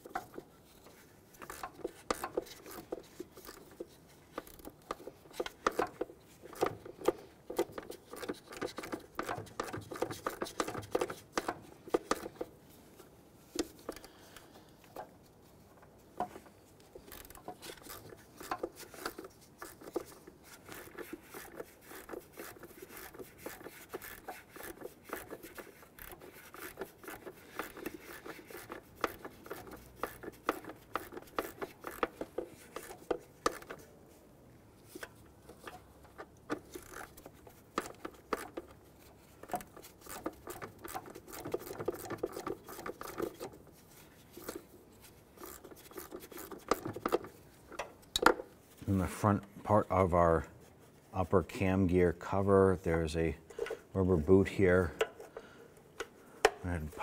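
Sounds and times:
ratchet wrench clicking: 0:01.4 - 0:03.7, 0:17.1 - 0:33.7, 0:36.6 - 0:38.8, 0:45.4 - 0:47.2.

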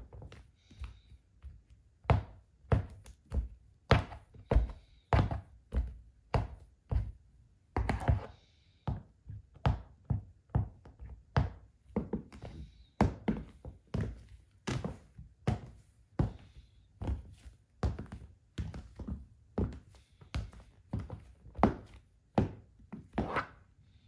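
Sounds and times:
shoe scraping: 0:23.2 - 0:23.6.

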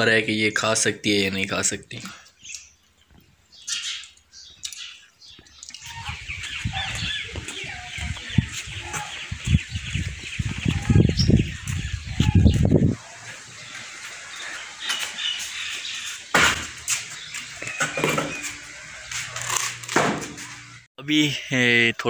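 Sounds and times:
birds chirping: 0:00.0 - 0:22.0
gusty wind buffeting microphone: 0:05.8 - 0:13.0.

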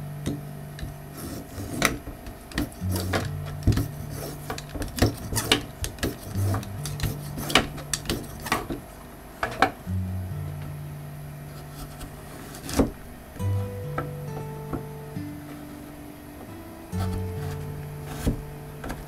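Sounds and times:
peeler scraping carrot skin: 0:01.2 - 0:08.6.

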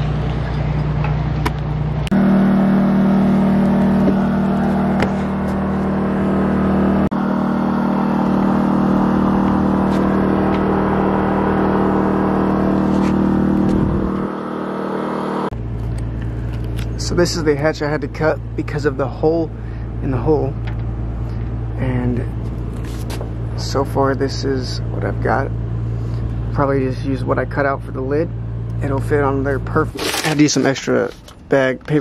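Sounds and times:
motor humming: 0:00.0 - 0:21.8.

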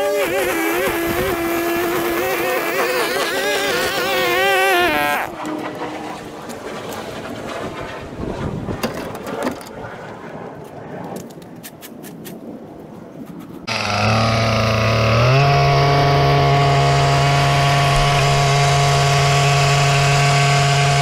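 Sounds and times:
string trimmer running: 0:00.0 - 0:05.9, 0:13.7 - 0:21.0.

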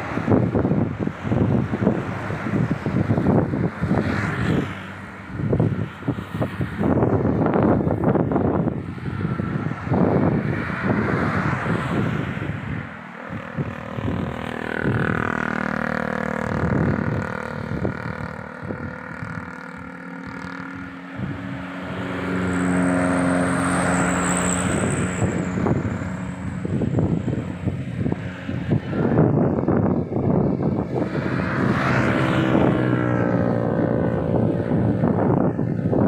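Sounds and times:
cars and motorcycles passing: 0:00.0 - 0:36.0
wind on microphone: 0:00.0 - 0:36.0.

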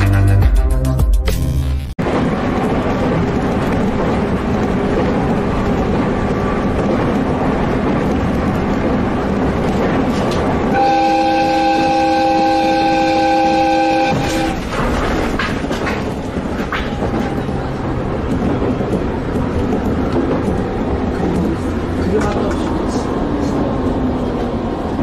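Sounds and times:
train running noise: 0:02.0 - 0:25.0
train horn blast: 0:10.7 - 0:14.7.

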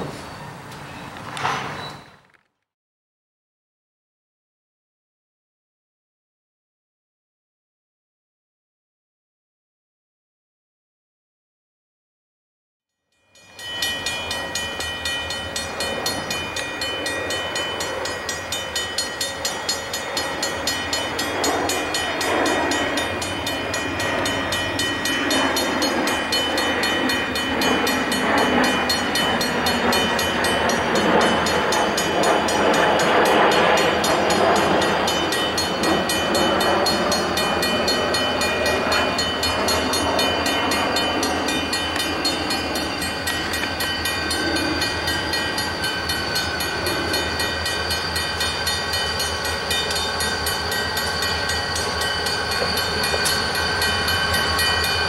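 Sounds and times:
crossing warning bell ringing: 0:13.1 - 0:55.0
diesel locomotive rumble: 0:13.7 - 0:55.0.

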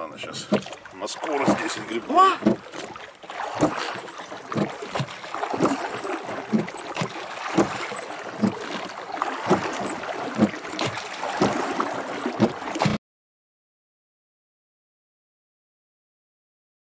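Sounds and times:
oars stroking in oarlocks: 0:00.0 - 0:13.0
water washing: 0:00.0 - 0:13.0.

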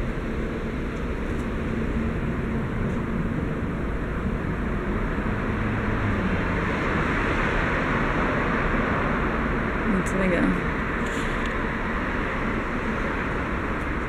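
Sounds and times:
parking garage rumble and hiss: 0:10.7 - 0:14.0.

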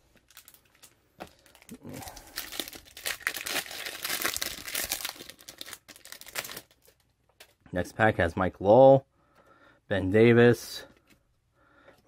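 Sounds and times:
plastic wrapper crinkling: 0:00.1 - 0:07.6.

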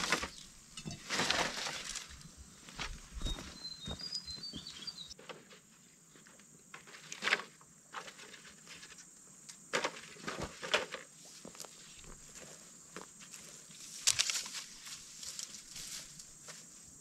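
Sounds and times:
footsteps on dry soil: 0:00.0 - 0:05.2, 0:11.2 - 0:17.0.

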